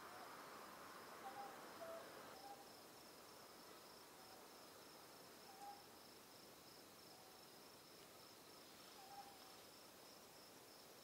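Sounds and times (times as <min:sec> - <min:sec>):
owl hooting faintly: 0:01.2 - 0:02.7, 0:05.5 - 0:05.9, 0:08.8 - 0:09.7.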